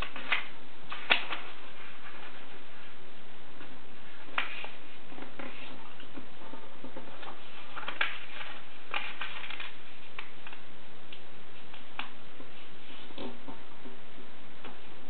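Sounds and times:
paper rustling and crackling: 0.0s - 3.0s, 3.6s - 10.7s
steady background hiss: 0.0s - 15.0s.

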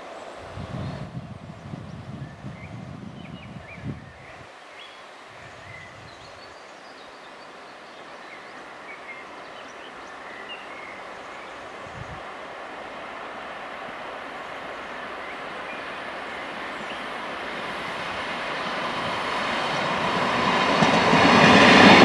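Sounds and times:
wind rumble on microphone: 0.4s - 4.5s, 5.3s - 6.4s, 11.7s - 12.4s
birds chirping: 2.4s - 12.3s, 14.2s - 20.9s
diesel train running: 12.2s - 22.0s.

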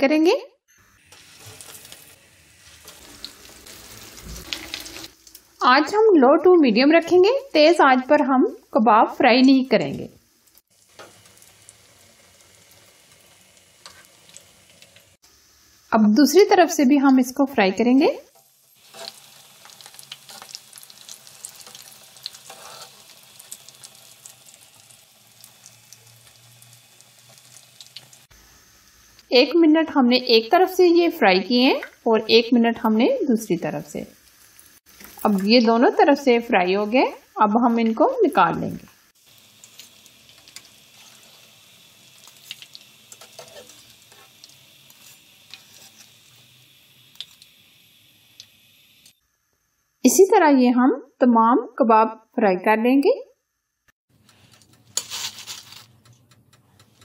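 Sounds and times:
food sizzling in oil: 0.7s - 50.2s, 54.5s - 55.9s
small crackles: 0.8s - 5.6s, 10.4s - 15.2s, 18.3s - 28.3s, 38.9s - 47.6s, 54.1s - 57.0s.

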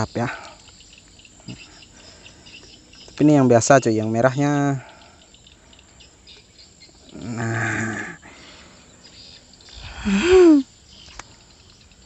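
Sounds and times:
insect chirring: 0.0s - 12.0s
man humming: 7.1s - 8.3s, 9.7s - 10.6s
man groaning exclamation: 9.9s - 10.6s.

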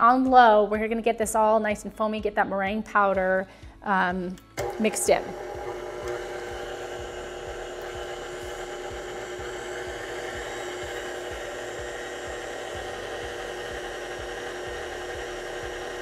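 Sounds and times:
stand mixer motor hum: 4.6s - 16.0s.

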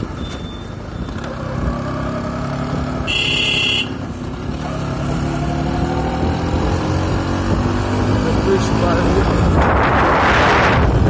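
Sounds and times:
road noise: 0.0s - 11.0s
motorcycle engine running: 0.7s - 9.6s
shrill horn beep: 3.1s - 4.0s.

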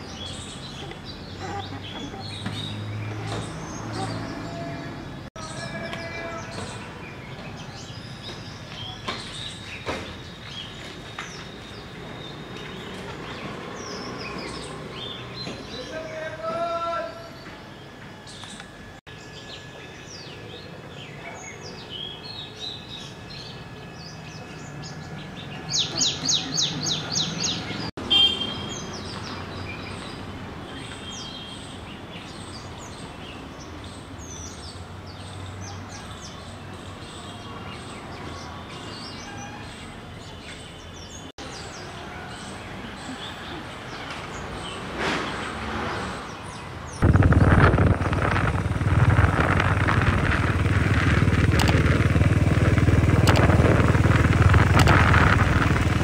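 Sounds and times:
birds chirping and calling: 0.0s - 17.5s, 18.3s - 56.0s
road noise: 0.0s - 21.1s, 23.0s - 56.0s
motorcycle engine: 47.0s - 56.0s.

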